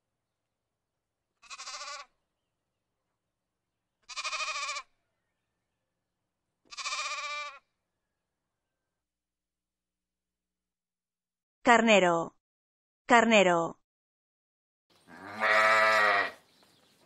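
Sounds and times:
lamb bleating: 0:01.4 - 0:02.2, 0:04.0 - 0:05.0, 0:06.7 - 0:07.7, 0:15.1 - 0:16.4.

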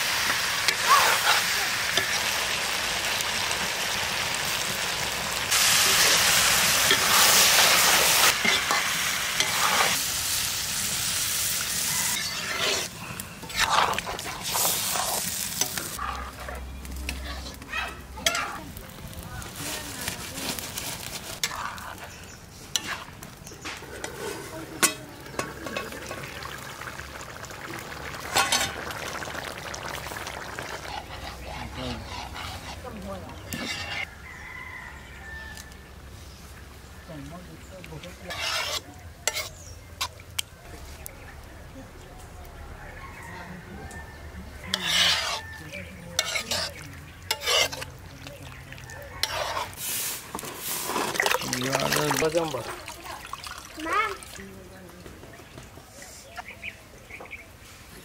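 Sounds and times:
curry sizzling: 0:00.0 - 0:58.0
metal spoon scraping a wok: 0:05.5 - 0:10.0, 0:11.8 - 0:17.6, 0:20.0 - 0:26.2, 0:28.3 - 0:28.8, 0:30.6 - 0:34.1, 0:38.0 - 0:40.1, 0:44.7 - 0:48.1, 0:49.0 - 0:52.2.

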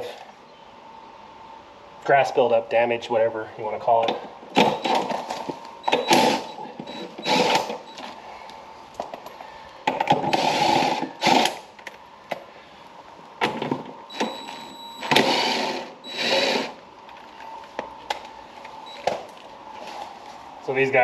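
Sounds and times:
cordless drill running: 0:04.6 - 0:05.2, 0:05.8 - 0:08.0, 0:10.2 - 0:11.7, 0:14.1 - 0:16.8.

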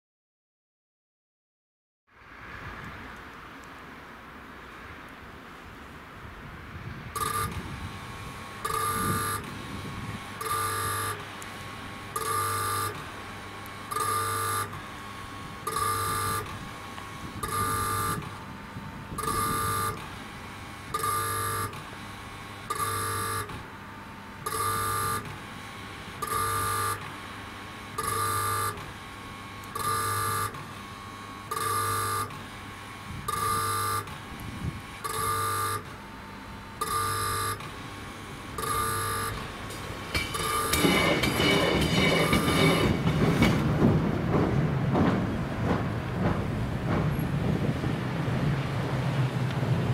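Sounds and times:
level crossing hooter blasts: 0:07.1 - 0:11.4.

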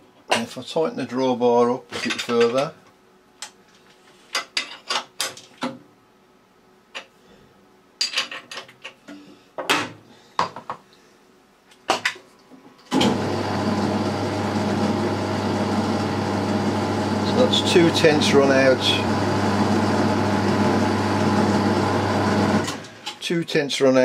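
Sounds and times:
motor hum: 0:12.9 - 0:23.1.

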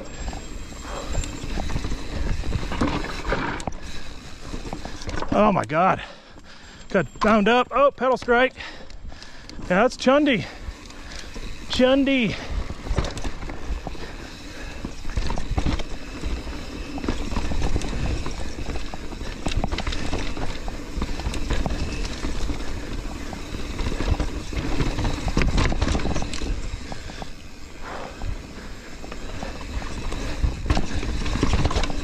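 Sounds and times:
bike clattering over rocks: 0:10.6 - 0:32.0.

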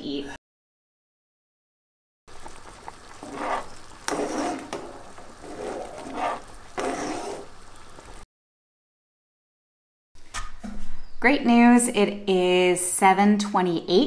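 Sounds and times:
spoon stirring thick soup: 0:02.3 - 0:08.1.

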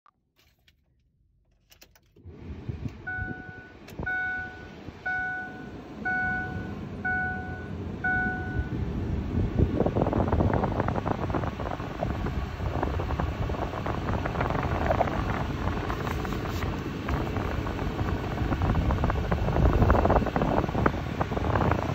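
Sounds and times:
dashboard warning chime: 0:03.0 - 0:08.8
rough rumble with crackles: 0:09.1 - 0:21.9.

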